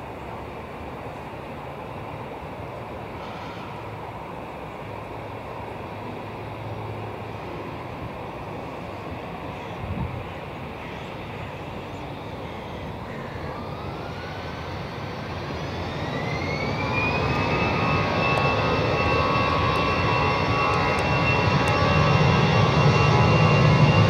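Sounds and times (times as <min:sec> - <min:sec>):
jet engines spooling up: 0:13.4 - 0:24.0
rising engine whine: 0:13.4 - 0:24.0.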